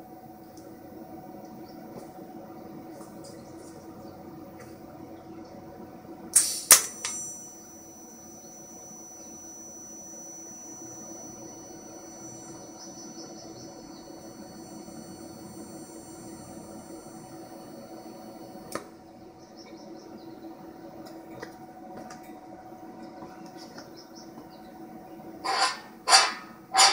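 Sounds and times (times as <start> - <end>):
welding arc whine: 0.0 - 26.9
welding arc striking click: 6.4 - 7.6.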